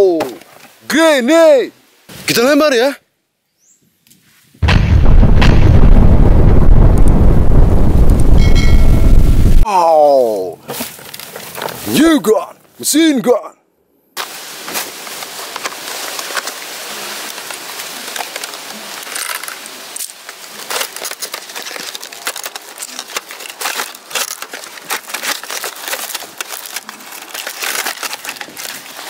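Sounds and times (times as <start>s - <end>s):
cardboard and plastic rustling: 10.6s - 12.0s, 14.2s - 29.0s
small scrapes and clicks: 14.7s - 29.0s.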